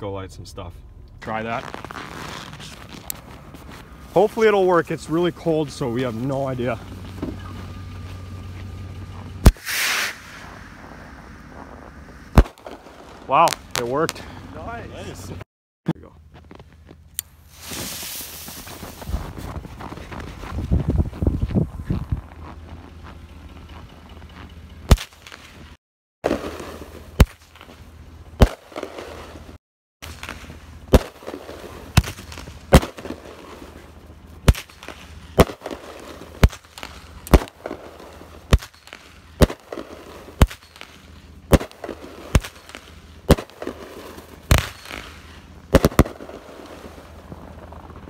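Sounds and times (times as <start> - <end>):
fireworks crackling: 1.2 - 15.4, 17.4 - 19.9, 26.2 - 48.0
fireworks bangs: 9.4 - 14.4, 26.2 - 27.8, 28.4 - 48.0.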